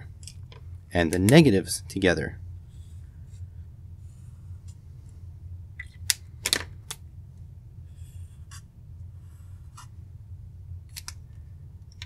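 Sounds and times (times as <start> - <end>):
low steady hum: 0.0 - 12.0
marker pen drawing on paper: 7.9 - 10.0.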